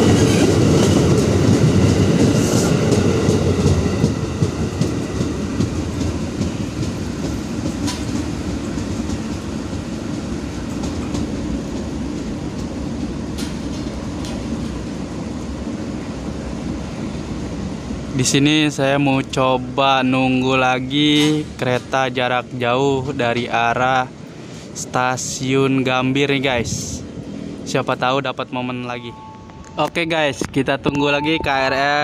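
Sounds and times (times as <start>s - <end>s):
electric train rumbling past: 0.0s - 32.0s.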